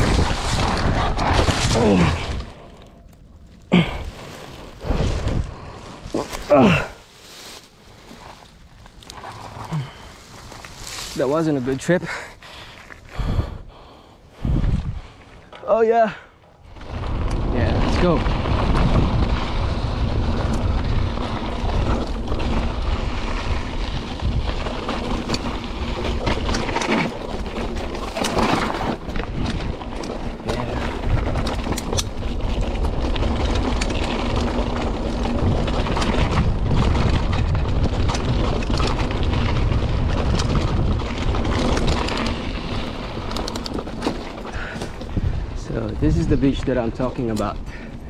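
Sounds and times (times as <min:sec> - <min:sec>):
bike clattering over bumps: 0:00.0 - 0:02.9, 0:16.4 - 0:48.0
bike tyre noise on dirt: 0:00.0 - 0:48.0
wind buffeting microphone: 0:12.6 - 0:15.2, 0:16.6 - 0:48.0.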